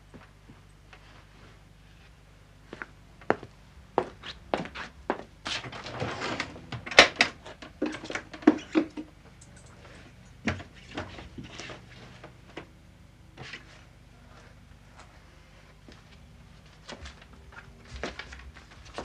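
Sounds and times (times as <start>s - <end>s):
papers and cloth rustling: 15.8s - 19.0s.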